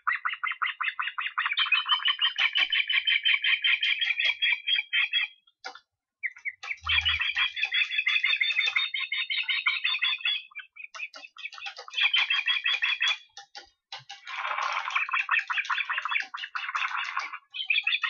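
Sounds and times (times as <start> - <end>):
osprey chirping: 0.0 - 5.4, 6.2 - 18.0.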